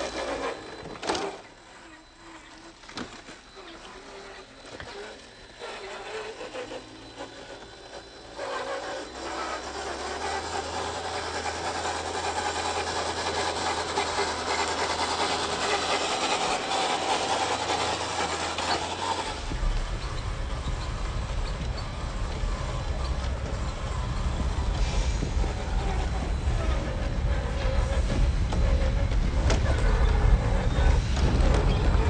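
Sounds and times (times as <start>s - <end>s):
electric motor whine: 0.0s - 32.0s
rasping scraping noise: 0.0s - 32.0s
deep low rumble: 19.2s - 32.0s.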